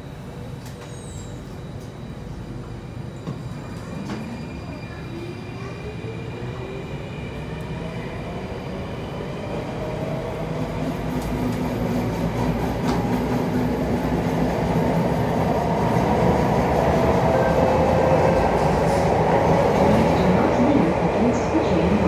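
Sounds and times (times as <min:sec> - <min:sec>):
train wheel and running noise: 0:00.0 - 0:22.0
metro train motor whine: 0:07.3 - 0:22.0.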